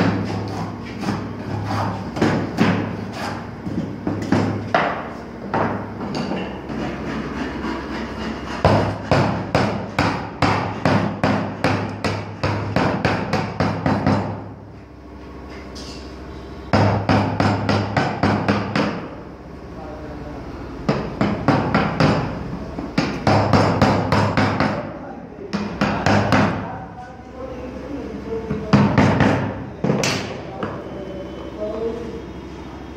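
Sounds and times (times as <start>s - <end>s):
hammer striking wood chisel: 4.1s - 14.4s, 16.7s - 19.1s, 22.9s - 24.8s, 25.5s - 26.6s.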